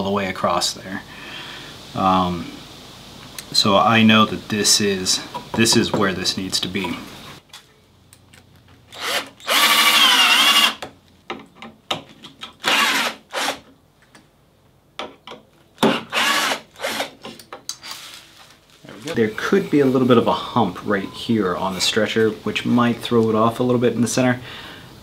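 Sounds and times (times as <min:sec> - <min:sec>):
power drill drilling into wood: 0:08.9 - 0:10.8, 0:12.6 - 0:13.6, 0:15.9 - 0:17.1.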